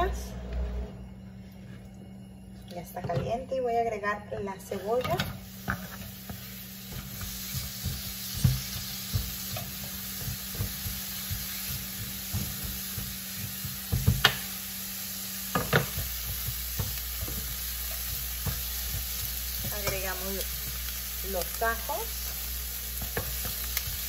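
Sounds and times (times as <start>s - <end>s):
onion sizzling in oil: 4.8s - 24.0s.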